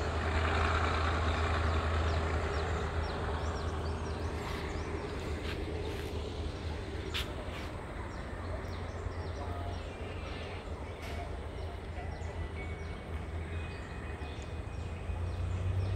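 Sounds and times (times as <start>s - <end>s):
steady low rumble: 2.0s - 12.7s
faint distant voices: 3.6s - 15.9s.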